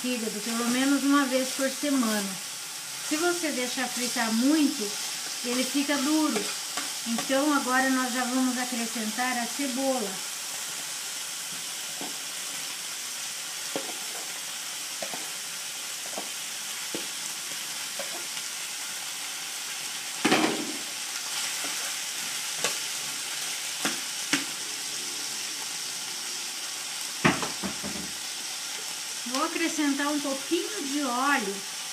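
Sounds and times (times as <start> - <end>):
liver sizzling in a frying pan: 0.0 - 31.9
utensil knocking on pan: 27.2 - 28.1.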